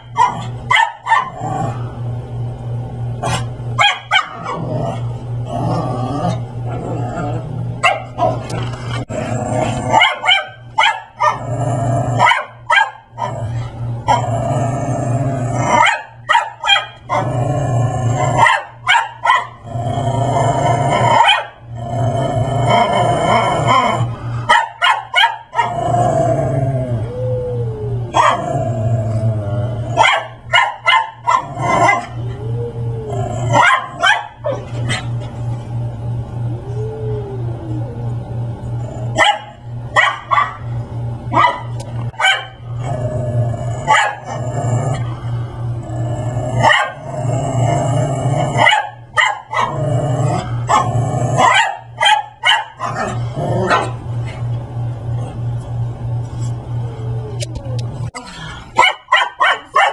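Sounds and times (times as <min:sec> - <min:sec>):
dog barking: 0:00.0 - 0:01.4, 0:03.3 - 0:04.6, 0:07.8 - 0:08.4, 0:09.9 - 0:11.4, 0:12.2 - 0:13.1, 0:15.7 - 0:17.0, 0:18.4 - 0:19.6, 0:21.2 - 0:21.6, 0:24.5 - 0:25.7, 0:28.2 - 0:28.4, 0:30.0 - 0:32.1, 0:33.6 - 0:35.0, 0:39.2 - 0:40.6, 0:41.3 - 0:42.6, 0:43.9 - 0:44.2, 0:46.6 - 0:47.0, 0:48.6 - 0:49.8, 0:50.7 - 0:53.1, 0:58.8 - 0:59.9
steady low hum: 0:00.0 - 0:59.9.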